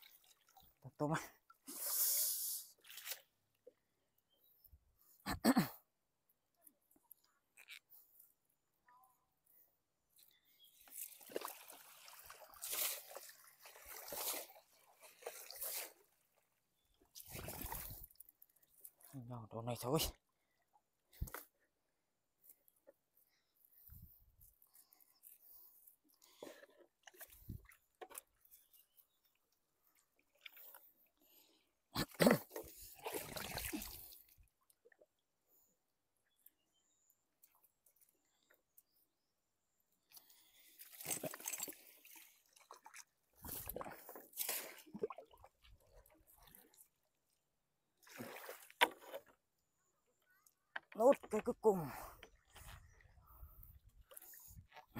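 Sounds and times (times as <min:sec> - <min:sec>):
water splashing and streaming: 0:00.0 - 0:03.3, 0:10.8 - 0:16.2, 0:17.1 - 0:19.0, 0:32.4 - 0:35.0, 0:40.5 - 0:46.8, 0:48.0 - 0:49.4.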